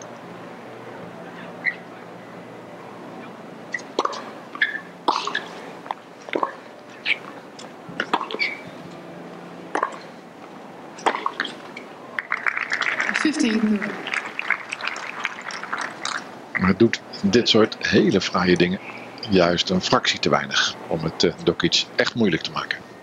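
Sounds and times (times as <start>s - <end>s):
tennis ball bouncing: 3.7s - 10.0s, 11.0s - 12.5s
rackets striking tennis ball: 3.7s - 10.1s, 10.9s - 12.8s
applause: 12.2s - 16.3s.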